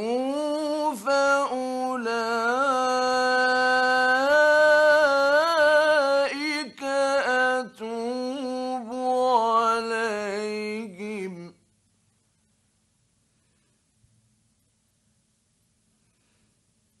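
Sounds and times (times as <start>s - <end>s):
man reciting melodically: 0.0s - 11.6s.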